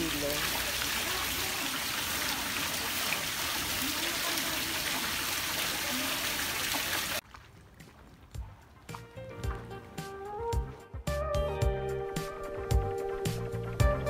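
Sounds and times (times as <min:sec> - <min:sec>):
water pouring into tanks: 0:00.0 - 0:07.2.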